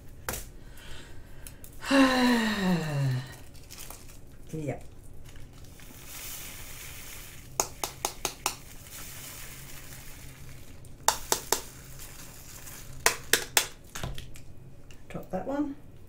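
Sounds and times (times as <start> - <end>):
poured beads hissing patter: 3.3 - 4.2, 5.2 - 13.9.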